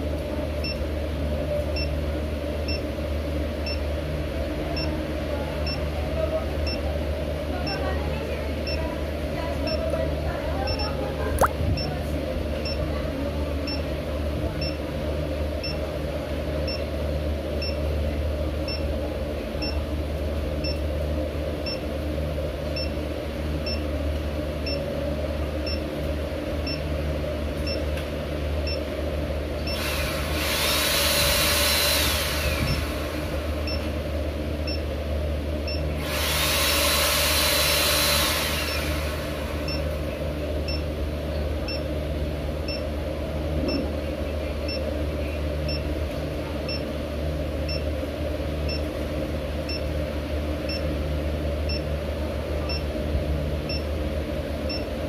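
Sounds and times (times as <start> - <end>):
steady low hum: 0.0 - 36.1, 37.2 - 55.0
scooter motor whirring: 29.6 - 33.8, 35.8 - 39.9.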